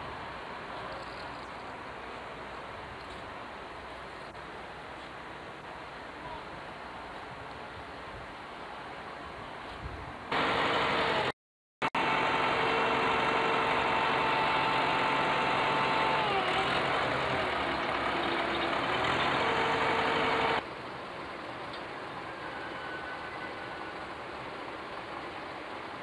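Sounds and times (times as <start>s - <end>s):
tractor engine running: 10.3s - 11.3s, 11.9s - 20.6s.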